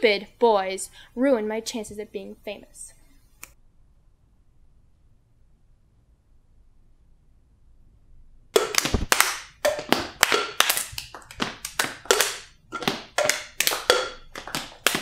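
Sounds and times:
people clapping: 8.6s - 15.0s.

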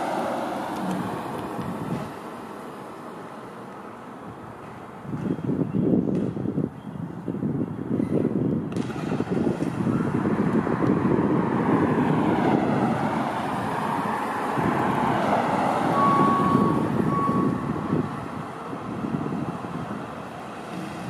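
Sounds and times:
wind buffeting microphone: 0.0s - 2.4s, 4.2s - 21.0s.

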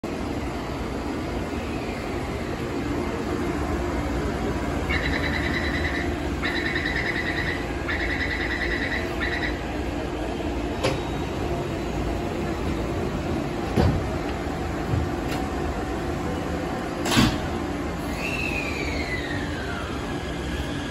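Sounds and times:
train low hum: 0.0s - 20.9s.

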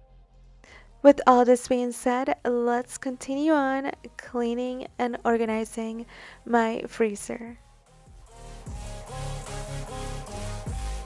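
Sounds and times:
electronic music with steady beat: 7.4s - 11.0s.

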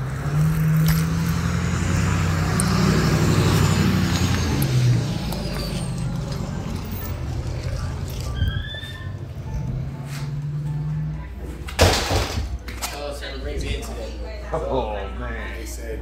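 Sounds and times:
vehicle engine running: 0.0s - 8.5s
traffic noise: 0.0s - 16.0s.

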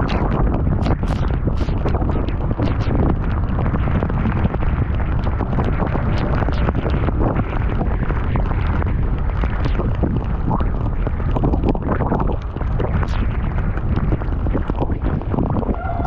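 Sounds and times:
wind buffeting microphone: 0.0s - 16.0s
rain: 3.4s - 16.0s.

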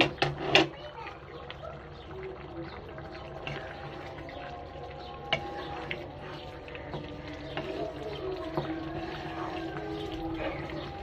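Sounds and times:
curry bubbling and popping: 0.0s - 11.0s.

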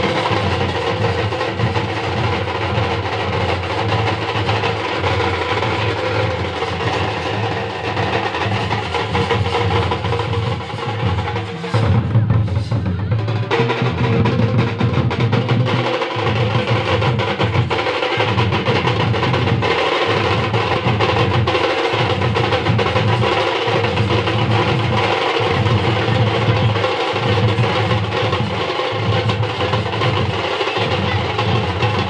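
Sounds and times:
bass drums beating: 0.0s - 32.0s
side drums played with sticks: 0.0s - 32.0s.

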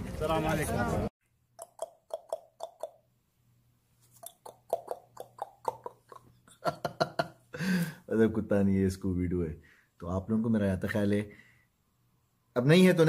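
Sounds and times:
mouth popping clicks: 1.5s - 3.1s, 4.1s - 6.3s
faint electrical hum: 3.0s - 13.0s.

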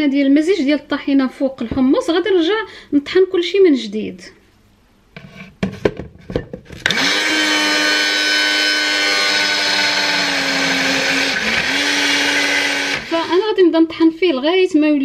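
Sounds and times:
blender motor running: 6.8s - 13.5s.

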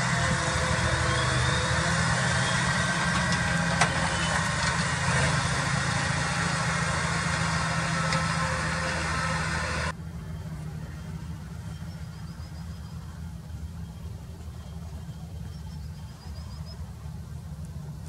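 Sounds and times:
high whine: 0.0s - 14.2s
tractor diesel engine under load: 0.0s - 18.0s.

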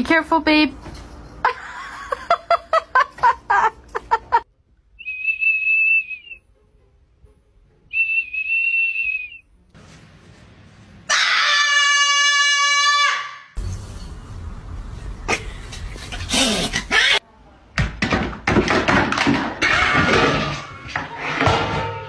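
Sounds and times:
high whistle blasts: 5.0s - 6.4s, 7.9s - 9.5s.

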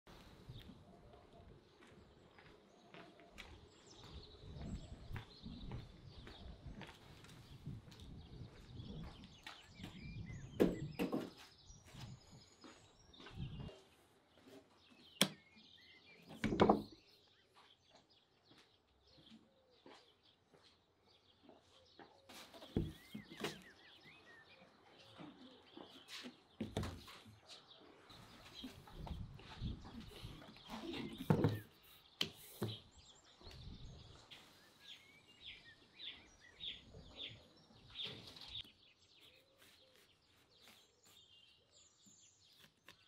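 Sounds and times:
birds chirping: 0.1s - 43.0s.

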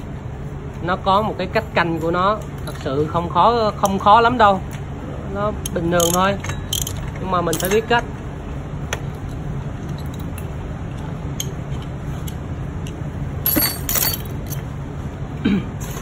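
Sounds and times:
steady low hum: 0.0s - 16.0s
metal tools clinking: 5.9s - 8.0s, 13.4s - 14.7s.

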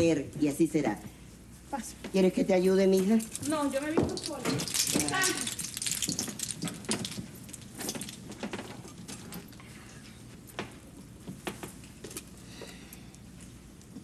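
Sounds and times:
metal jewellery jangling: 2.9s - 8.2s.

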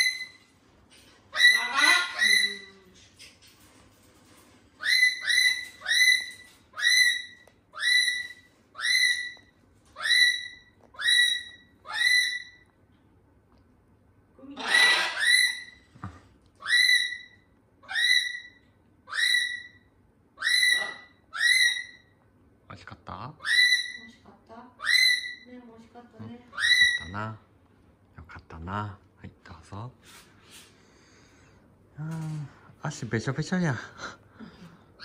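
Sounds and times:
harsh noisy cockatoo call: 14.6s - 15.8s.

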